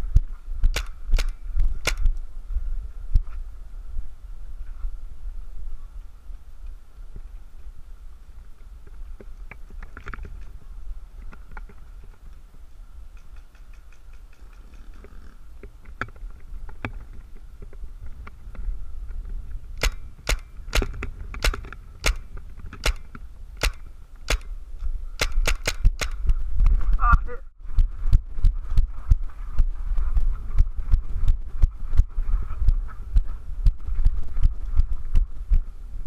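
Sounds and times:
wind rumble on microphone: 0.0 - 36.0
paintball marker shots: 0.6 - 2.2, 19.8 - 24.6, 25.2 - 26.4.

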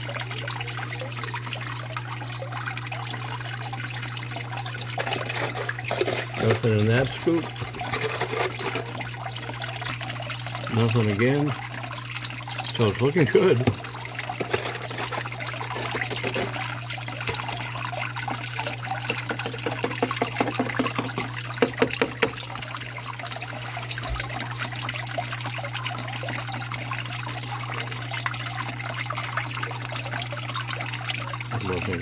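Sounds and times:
water sloshing in plastic pan: 4.5 - 22.8.

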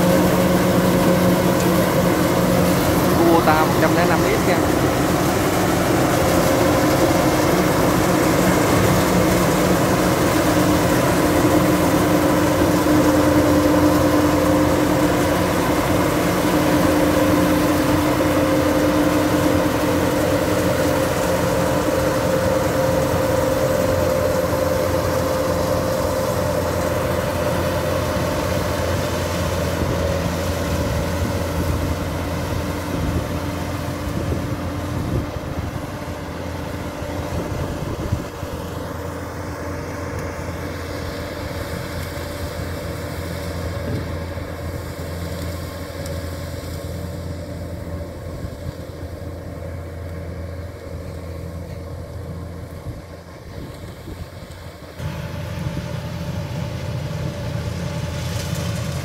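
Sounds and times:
combine harvester running: 0.0 - 59.0.

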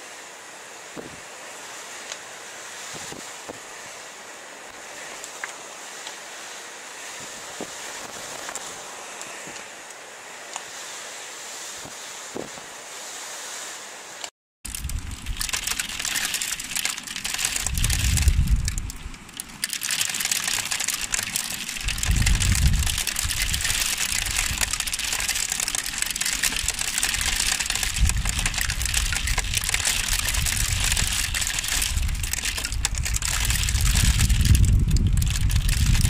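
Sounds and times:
hailstones striking the ground: 14.7 - 36.0
wind gusts on microphone: 17.4 - 19.2, 21.6 - 36.0.

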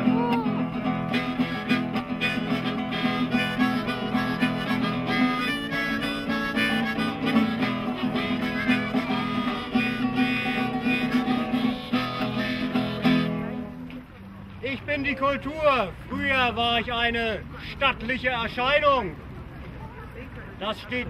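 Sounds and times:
harmonica melody: 0.0 - 13.9
plucked lute: 0.0 - 14.3.

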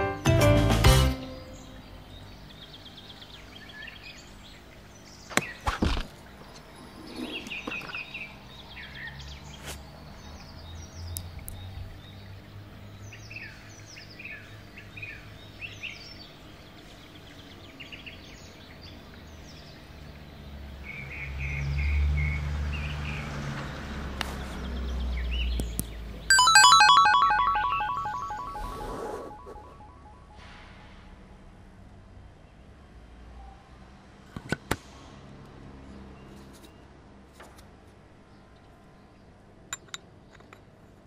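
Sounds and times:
birds chirping: 24.6 - 30.3.

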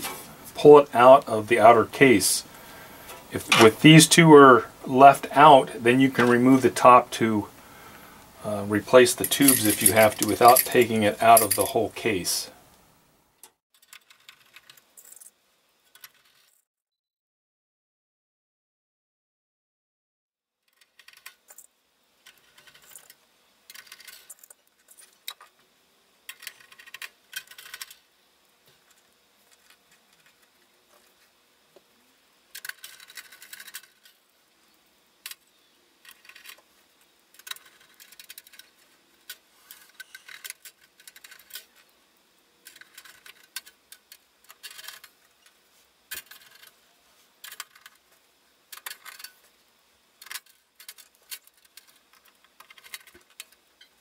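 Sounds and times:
small metallic clinks: 9.2 - 11.8
screwdriver scraping metal: 39.7 - 41.7.

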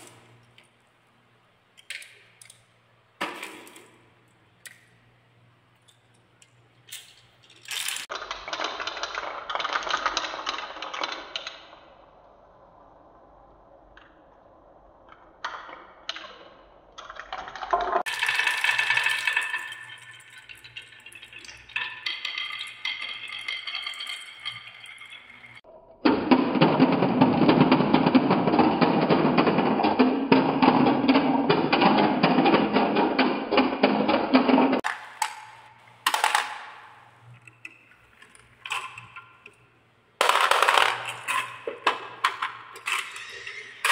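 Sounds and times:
marbles clattering on wooden tracks: 6.9 - 11.8, 15.2 - 25.6, 27.4 - 39.6, 40.2 - 43.9
marbles rattling in toy truck: 17.3 - 20.8
marble dropping into toy truck: 34.8 - 36.8, 40.2 - 43.9.

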